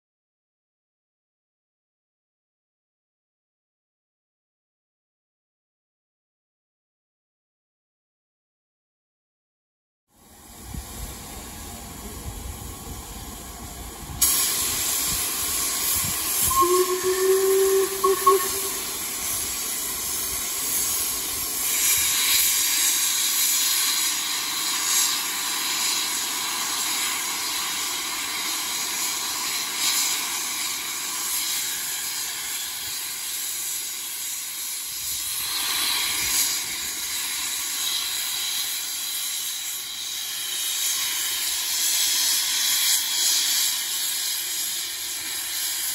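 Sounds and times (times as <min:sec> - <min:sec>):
steam hissing: 0:10.2 - 0:45.9
steam locomotive whistle: 0:16.3 - 0:19.8.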